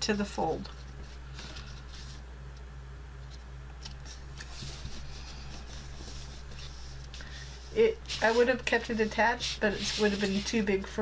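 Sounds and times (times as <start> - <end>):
steady low hum: 0.0 - 11.0
cardstock rustling and rubbing: 0.7 - 2.3, 3.9 - 10.9
soft scrapes: 4.1 - 10.8.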